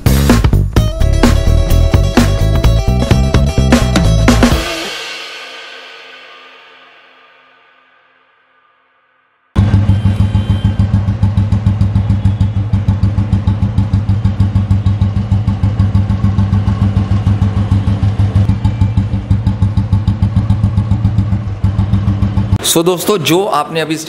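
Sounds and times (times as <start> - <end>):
motorcycle engine idling: 9.6 - 22.6.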